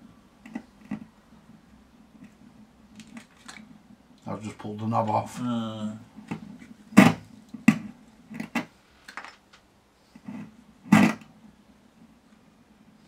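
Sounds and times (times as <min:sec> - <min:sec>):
faint mains hum: 0:00.0 - 0:13.0
amplifier crackles and pops: 0:00.4 - 0:04.3, 0:06.2 - 0:11.4.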